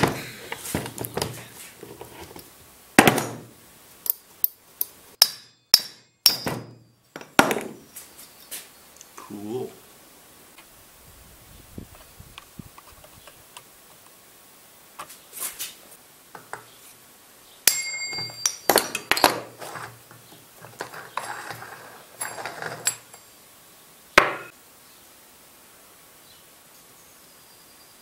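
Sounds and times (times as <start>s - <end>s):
ringing metallic ping: 17.7s - 19.1s
metal parts clinking on workbench: 17.7s - 19.9s, 20.7s - 23.3s.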